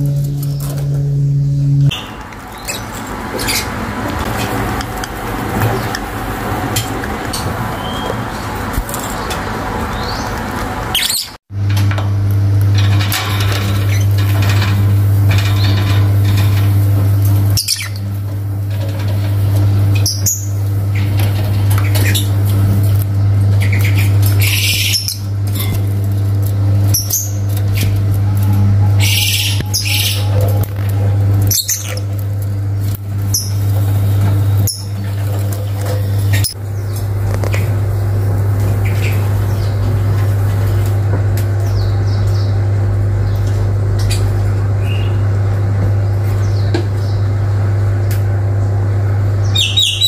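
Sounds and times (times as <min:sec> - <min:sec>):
loud steady low hum: 0:00.0 - 0:50.0
lovebirds chirping and squawking: 0:01.5 - 0:03.8, 0:07.7 - 0:11.4, 0:17.4 - 0:18.2, 0:20.0 - 0:22.5, 0:23.2 - 0:25.8, 0:26.8 - 0:32.2, 0:33.2 - 0:33.7, 0:34.5 - 0:37.0, 0:38.6 - 0:40.1, 0:49.4 - 0:50.0.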